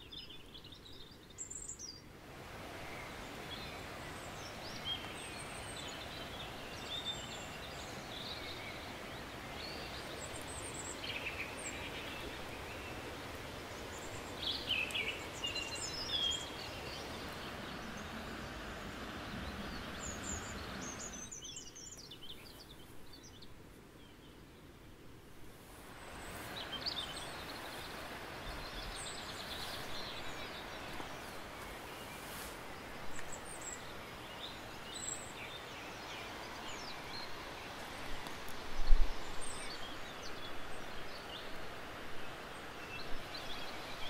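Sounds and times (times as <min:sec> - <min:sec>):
songbirds chirping and trilling: 0:00.0 - 0:44.0
steady rushing background noise: 0:02.3 - 0:21.4.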